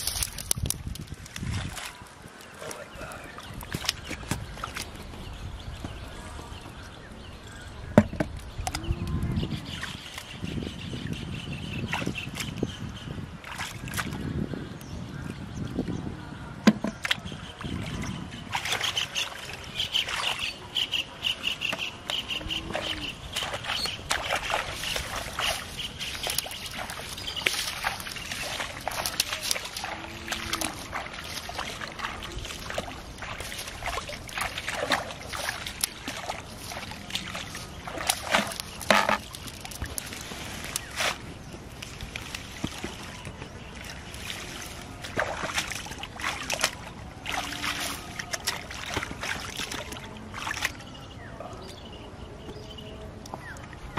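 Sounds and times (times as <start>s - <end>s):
splashing in muddy water: 0.0s - 5.2s, 7.9s - 14.2s, 16.6s - 53.9s.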